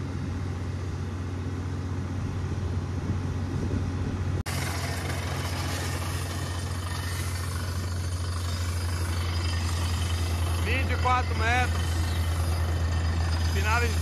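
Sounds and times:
drilling rig hammering rock: 4.5s - 14.0s.

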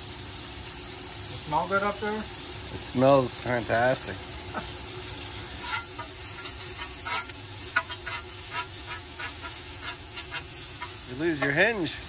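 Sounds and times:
meat sizzling on a griddle: 0.0s - 12.0s
metal spatula clacking and scraping: 5.6s - 11.6s.

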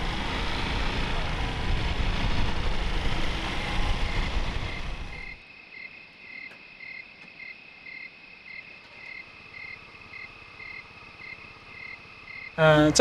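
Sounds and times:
scooters running: 0.0s - 5.4s
steady high drone: 0.0s - 5.6s
night insects chirping: 2.0s - 13.0s.

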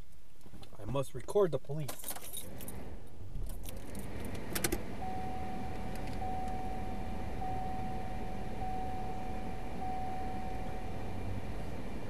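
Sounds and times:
low hum of car: 0.0s - 12.0s
keys jangling and clicking: 1.9s - 2.8s
high electronic warning tone: 5.0s - 11.0s.

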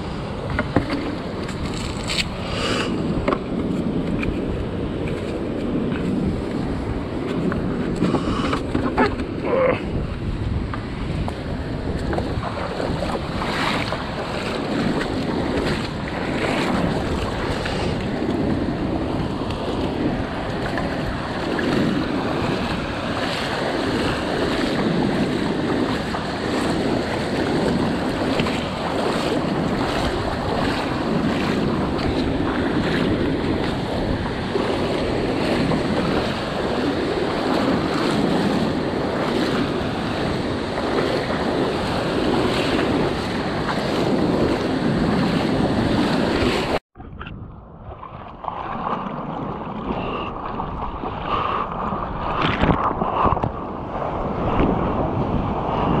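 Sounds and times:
breaking surf: 0.0s - 46.8s
wind buffeting microphone: 0.0s - 56.0s.

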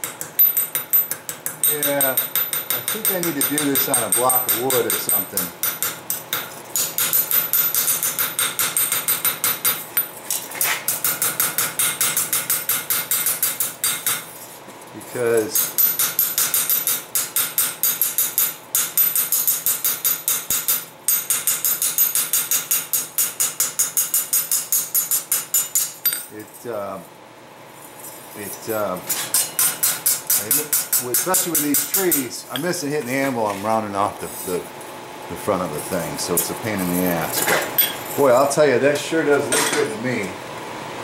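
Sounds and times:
hammer striking steel on anvil: 0.0s - 10.1s, 10.9s - 14.3s, 15.4s - 26.3s, 29.1s - 32.7s.

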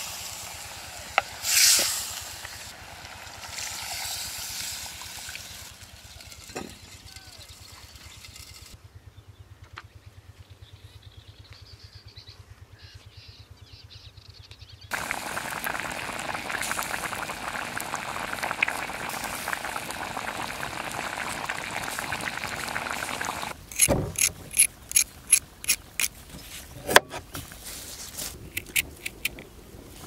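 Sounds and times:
meat boiling in a pot: 0.0s - 6.4s, 14.9s - 26.1s.

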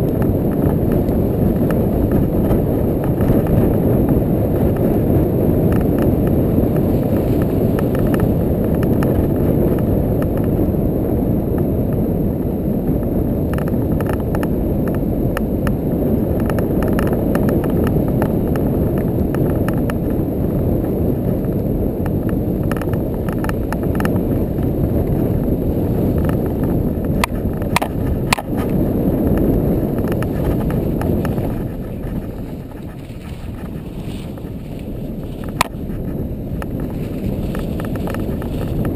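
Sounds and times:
atv engine drone: 0.0s - 38.9s
wind buffeting microphone: 0.0s - 38.9s
knocks and clicks: 26.2s - 34.6s, 35.4s - 38.9s.

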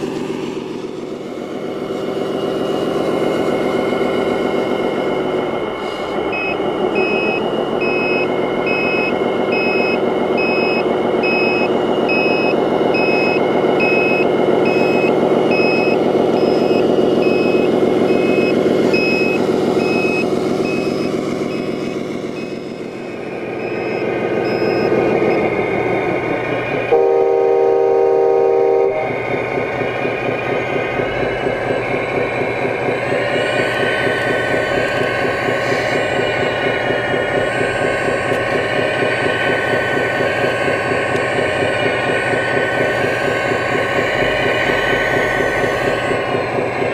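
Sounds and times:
diesel engine: 0.0s - 46.9s
reversing beeper beeping: 6.2s - 25.7s, 26.8s - 29.2s
loud horn blast: 26.9s - 29.1s.

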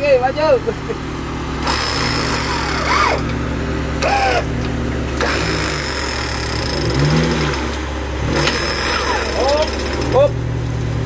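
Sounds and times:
car engine running: 0.0s - 11.0s
electric winch motor under load: 1.5s - 10.3s.

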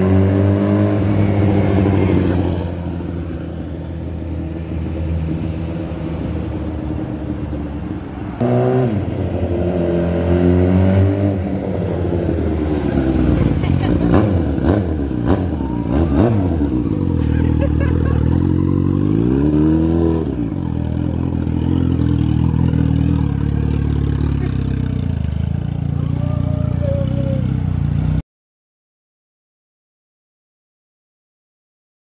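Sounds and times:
motorcycle engine revving: 0.0s - 28.2s.

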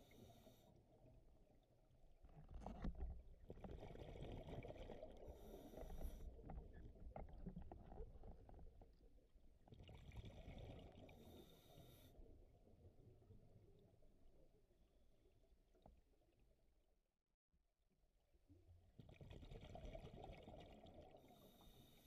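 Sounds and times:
exhaled bubbles gurgling: 19.0s - 21.9s.

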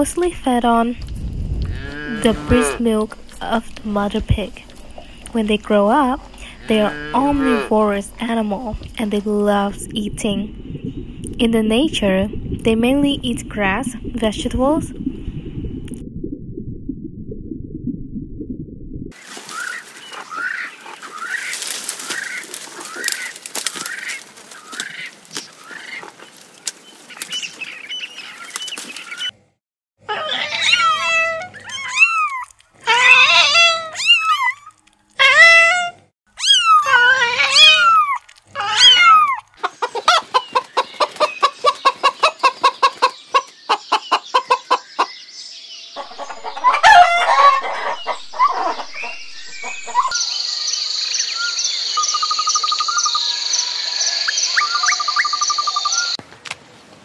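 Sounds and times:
hen clucking: 1.7s - 2.8s, 6.1s - 8.7s, 39.1s - 45.1s, 46.0s - 50.2s
high chirping with ticks: 47.8s - 56.2s.

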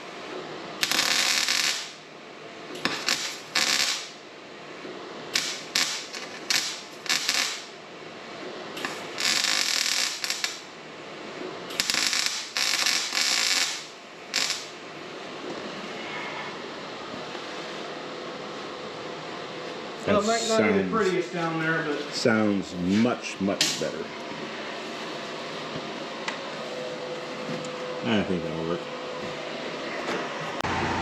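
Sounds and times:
welder arc crackling: 0.8s - 2.0s, 2.8s - 4.2s, 5.3s - 7.8s, 8.7s - 10.7s, 11.7s - 14.8s
man talking: 20.0s - 24.2s, 28.0s - 28.8s.

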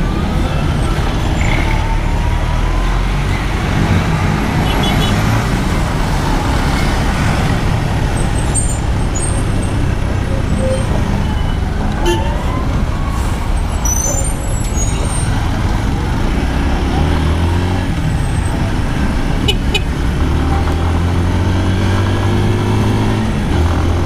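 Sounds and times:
wind and road noise: 0.0s - 24.0s
high squeaks from traffic: 8.0s - 15.6s.

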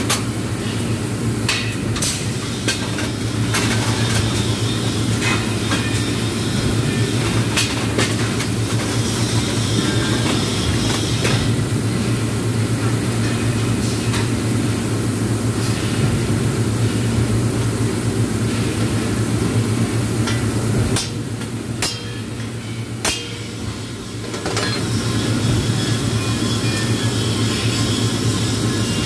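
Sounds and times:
welding equipment humming: 0.0s - 29.0s.

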